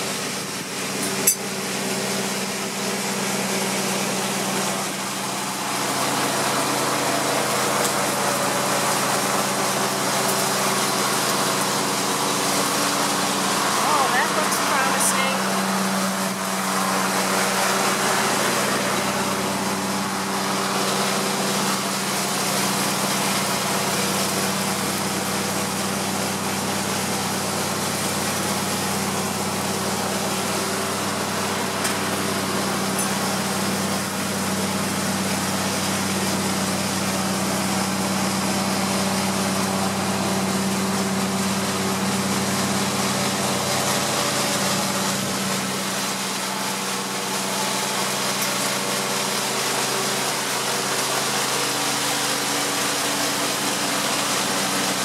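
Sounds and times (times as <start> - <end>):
honey bees buzzing: 12.8 - 20.8.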